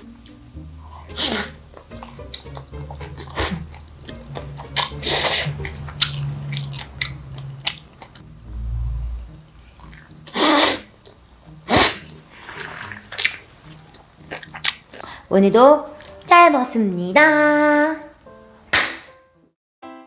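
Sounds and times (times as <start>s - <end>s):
slurping off a spoon: 1.0s - 1.6s, 4.8s - 5.7s, 11.7s - 13.4s
soft chewing: 12.0s - 15.2s.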